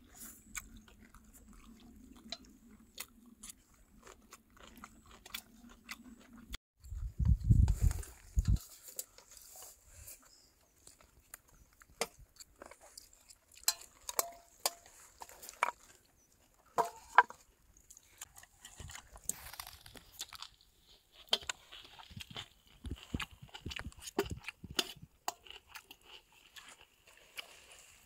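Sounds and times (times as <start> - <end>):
person chewing and biting food: 0.0 - 9.2, 10.8 - 16.8, 17.8 - 28.0.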